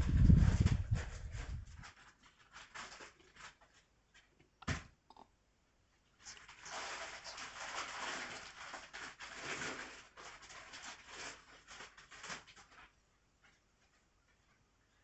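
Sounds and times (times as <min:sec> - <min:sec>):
dry rustling and crackling: 0:00.0 - 0:04.3, 0:06.2 - 0:13.0.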